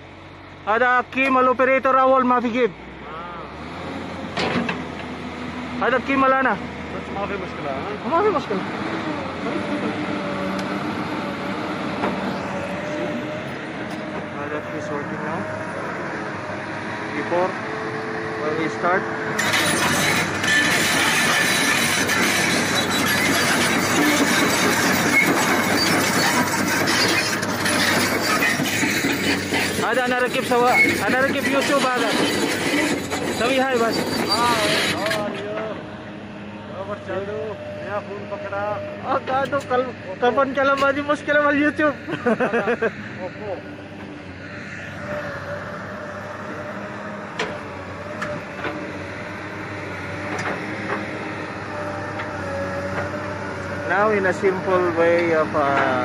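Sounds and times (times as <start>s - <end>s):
diesel engine running: 0.0s - 56.0s
track chains clanking and squeaking: 18.5s - 35.9s, 36.8s - 43.0s, 45.0s - 56.0s.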